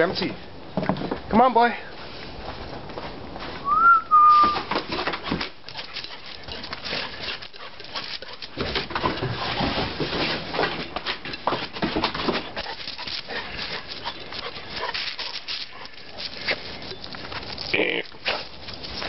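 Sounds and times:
footsteps crunching on snow: 1.9 - 4.5.

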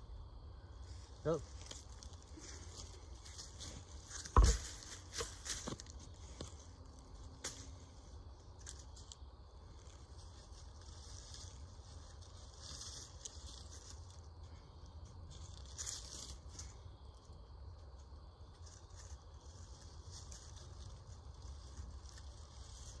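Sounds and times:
low steady rumble: 0.0 - 23.0
dragging through dry leaves: 0.8 - 14.6, 15.3 - 16.8, 18.5 - 23.0
rope rustling and scraping: 1.5 - 14.6, 18.6 - 23.0.

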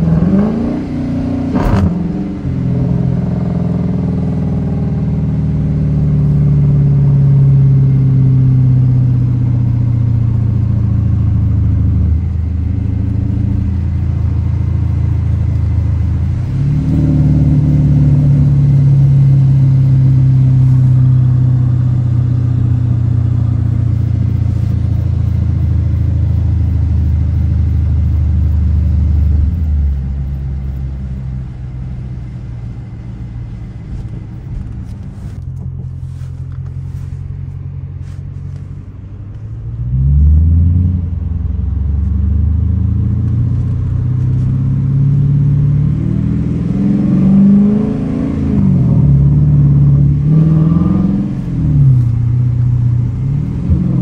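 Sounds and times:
car engine rumbling: 0.0 - 54.0.

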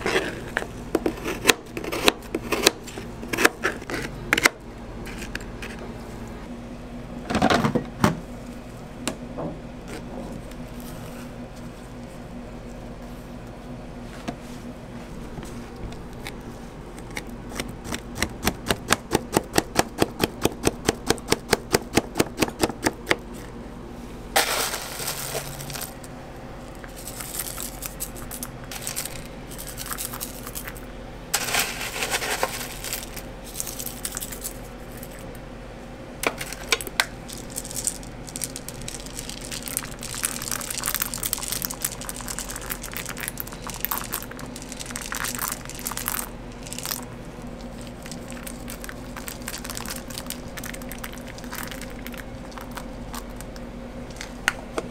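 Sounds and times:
crunchy toppings pattering: 24.4 - 35.4, 36.2 - 54.6.

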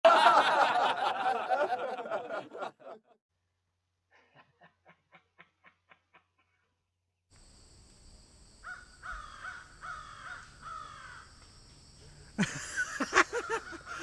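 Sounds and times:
burst of laughter: 0.0 - 3.2, 12.4 - 14.0
soft rhythmic laughing: 0.1 - 3.2, 4.1 - 6.8, 12.0 - 14.0.

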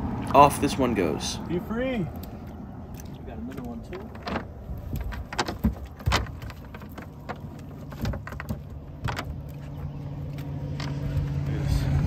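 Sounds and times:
low engine hum: 0.0 - 12.0
knocks and rattles of fish: 2.1 - 11.3.

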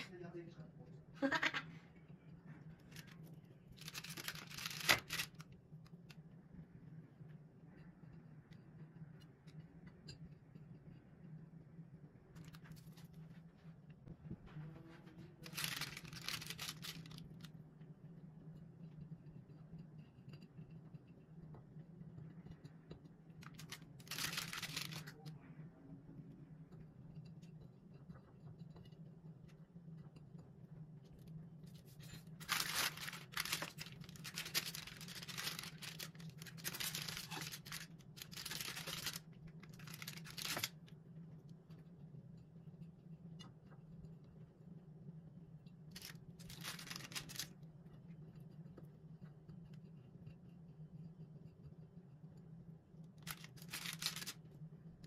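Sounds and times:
baking paper crinkling: 2.8 - 5.5, 15.4 - 17.5, 23.4 - 25.2, 31.8 - 40.9, 45.9 - 47.6, 53.2 - 54.4
steady low hum: 5.4 - 55.0.

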